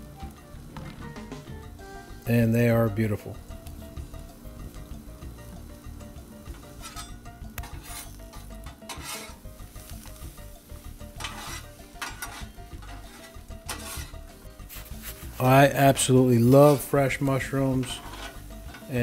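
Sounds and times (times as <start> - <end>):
food sizzling: 0.0 - 19.0
metal spatulas scraping griddle: 6.4 - 19.0.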